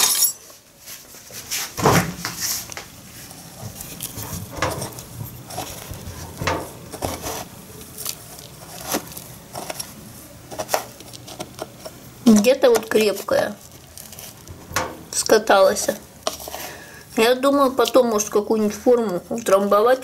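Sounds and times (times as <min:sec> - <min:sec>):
spoon scraping dry crumbly mixture: 0:03.4 - 0:14.5, 0:15.2 - 0:19.9.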